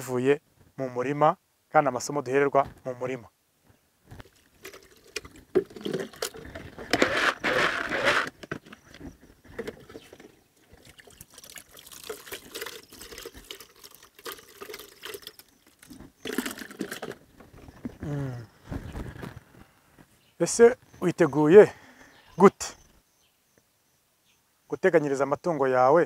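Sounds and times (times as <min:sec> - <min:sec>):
water pouring into bucket: 0:04.2 - 0:08.3, 0:09.6 - 0:17.2.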